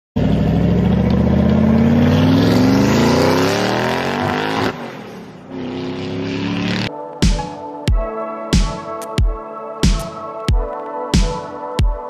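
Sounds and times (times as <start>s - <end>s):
car engine revving up: 0.2s - 6.9s.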